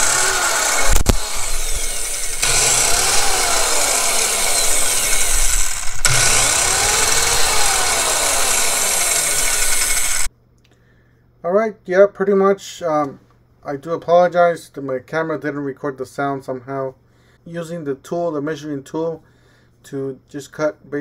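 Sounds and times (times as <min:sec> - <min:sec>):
circular saw running: 0:00.0 - 0:10.3.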